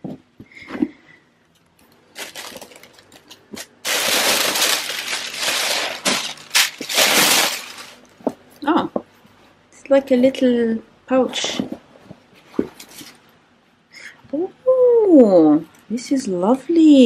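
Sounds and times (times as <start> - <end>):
tissue paper rustling: 2.1 - 8.1.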